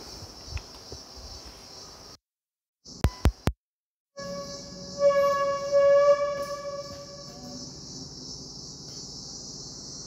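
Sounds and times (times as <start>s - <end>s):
crickets chirring: 0.0s - 2.2s, 4.2s - 10.0s
held electronic organ note: 4.2s - 7.7s.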